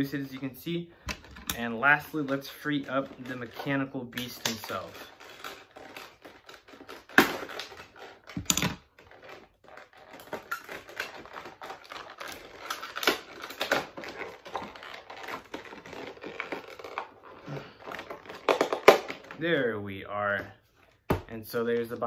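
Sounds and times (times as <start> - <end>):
knife cutting packaging: 1.9 - 19.4
plastic packaging clicks and snaps: 2.2 - 17.2, 17.9 - 19.4.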